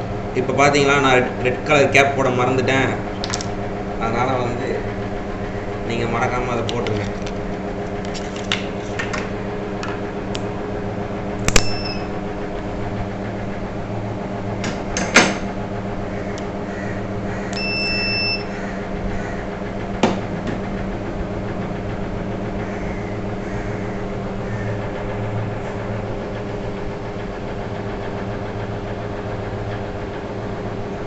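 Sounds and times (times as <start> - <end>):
steady electrical hum: 0.0 - 31.0
short electronic beep: 11.6 - 12.1, 17.6 - 18.5.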